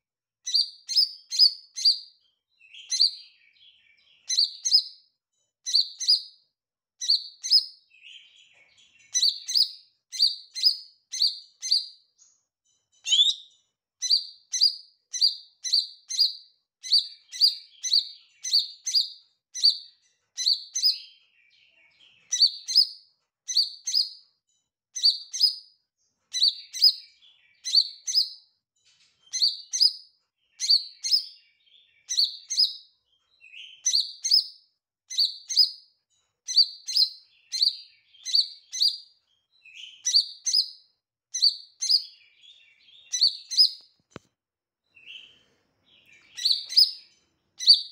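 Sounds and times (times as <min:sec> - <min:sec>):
soft bird twittering: 0:00.5 - 0:05.0, 0:05.6 - 0:06.4, 0:07.0 - 0:24.2, 0:25.0 - 0:25.7, 0:26.3 - 0:35.9, 0:36.5 - 0:43.9, 0:45.0 - 0:47.9
bird chirping sharp high notes: 0:13.1 - 0:16.3.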